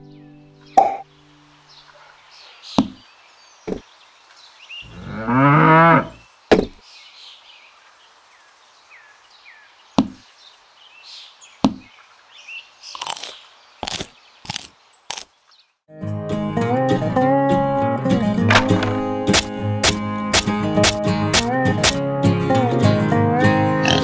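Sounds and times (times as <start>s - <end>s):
cow mooing: 4.8s - 6.2s
toys knocking into wooden crate: 18.5s - 19.4s.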